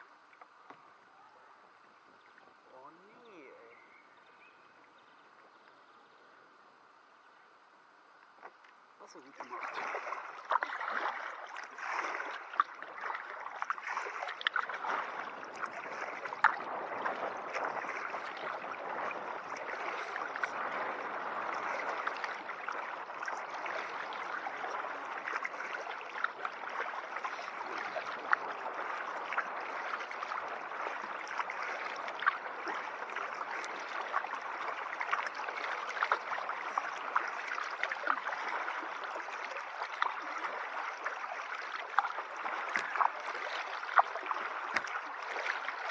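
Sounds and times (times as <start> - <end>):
water gurgling along a hull: 0.0 - 45.9.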